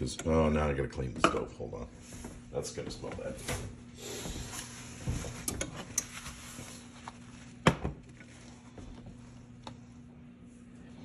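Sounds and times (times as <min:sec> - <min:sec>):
faint steady hum: 0:00.0 - 0:11.0
cloth rubbing stovetop: 0:03.3 - 0:10.7.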